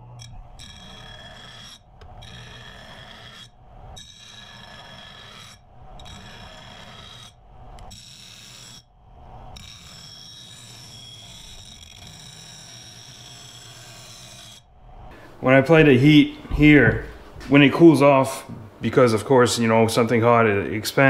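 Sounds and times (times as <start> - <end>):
file rasping on steel: 0.2 - 15.2.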